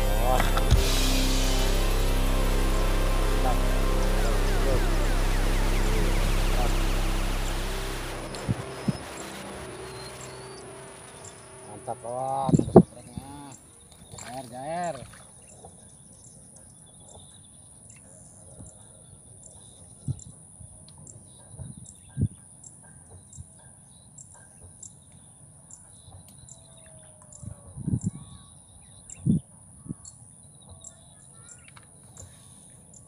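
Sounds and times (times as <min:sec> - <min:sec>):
steady high hiss: 0:00.0 - 0:13.6.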